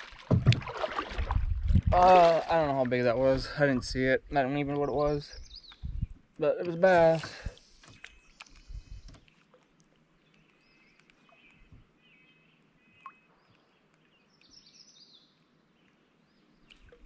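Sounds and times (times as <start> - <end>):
soft clicks: 7.8 - 11.6
faint bird chirps: 10.2 - 16.7.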